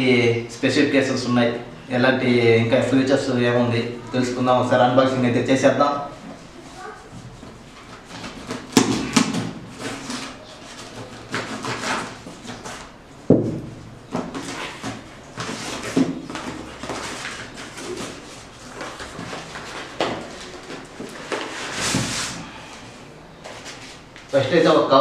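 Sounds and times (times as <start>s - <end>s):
cardboard flaps rustling and scraping: 7.0s - 22.5s.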